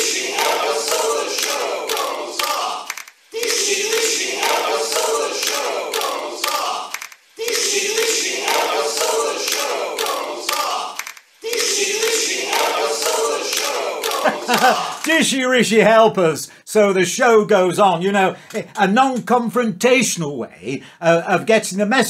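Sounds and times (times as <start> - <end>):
crowd chanting in unison: 0.0 - 15.1.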